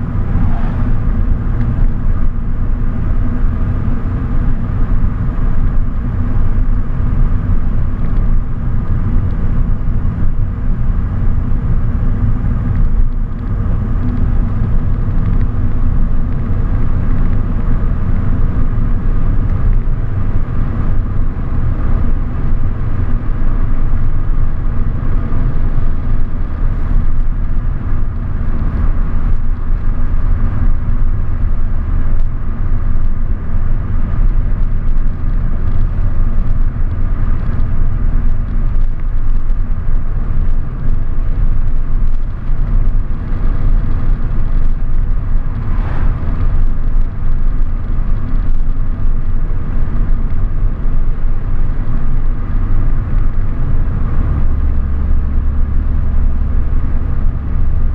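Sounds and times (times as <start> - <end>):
car engine and tyre rumble: 0.0 - 57.9.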